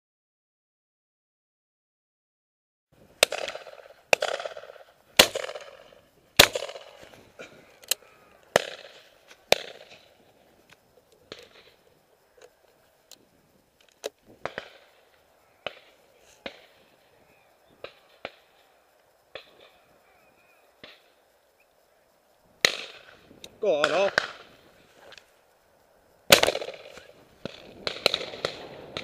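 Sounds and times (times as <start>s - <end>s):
shotguns firing with echo: 3.2s - 7.1s, 8.5s - 10.2s, 14.4s - 17.0s, 17.7s - 18.7s, 19.3s - 20.0s, 22.6s - 24.7s, 26.3s - 29.0s
distant scattered shots: 3.2s - 7.5s, 8.5s - 10.2s, 14.4s - 21.3s, 22.6s - 24.7s, 26.3s - 29.0s.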